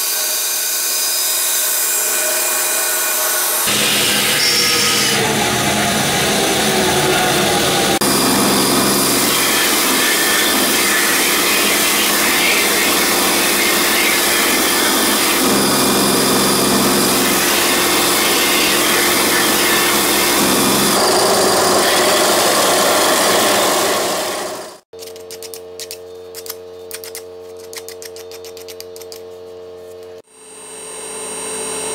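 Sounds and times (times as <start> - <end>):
bandsaw running: 0.0 - 24.8
belt sander sanding metal tube: 7.9 - 24.6.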